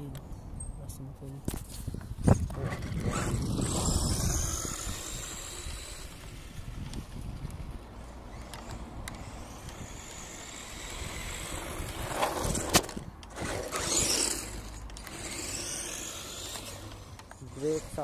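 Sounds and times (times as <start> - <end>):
rc truck motor rumble and whine: 2.1 - 18.0.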